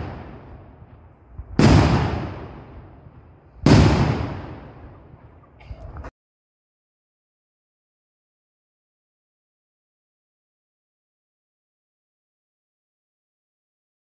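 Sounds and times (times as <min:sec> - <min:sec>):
cannon shots: 0:00.0 - 0:01.0, 0:01.6 - 0:05.2
rolling echo: 0:00.0 - 0:06.1.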